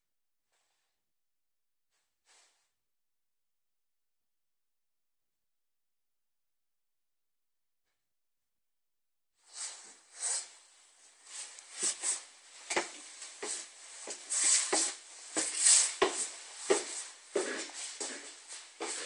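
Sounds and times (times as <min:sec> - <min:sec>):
footsteps on wooden stairs: 0:12.7 - 0:19.0.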